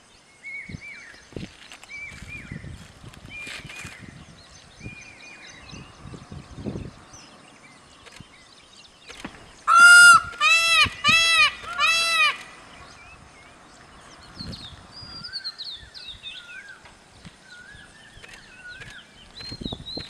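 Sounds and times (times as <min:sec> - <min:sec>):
peacock calling: 0:09.1 - 0:16.9.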